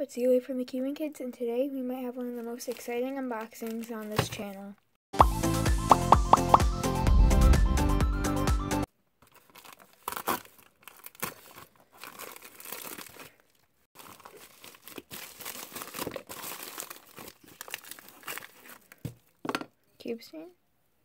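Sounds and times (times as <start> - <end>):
plastic bag crinkling and tearing: 2.5 - 4.2, 9.2 - 19.4
intro music: 5.2 - 8.9.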